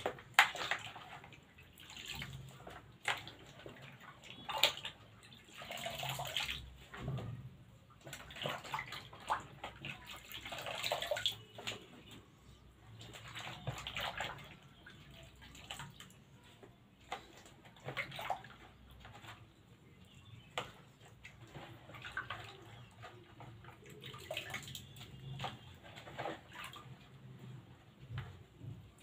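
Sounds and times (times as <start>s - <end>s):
hands sloshing in water: 0.0s - 7.3s, 7.9s - 16.4s
water splashes and drips: 0.0s - 29.0s.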